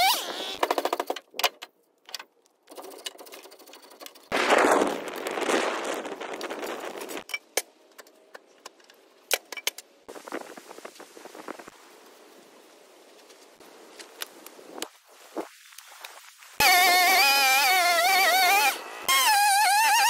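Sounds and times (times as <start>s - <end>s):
wood fire crackling: 10.2s - 16.6s.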